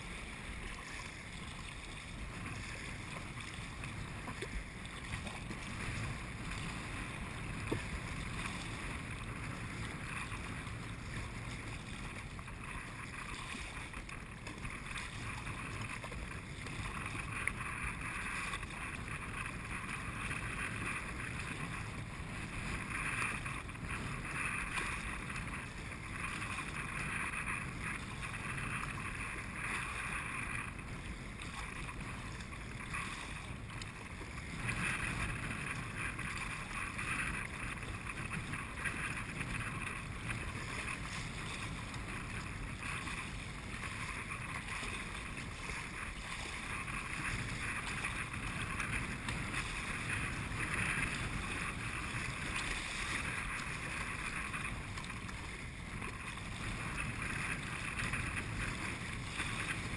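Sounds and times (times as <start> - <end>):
water splashing against kayak hull: 0.0 - 59.9.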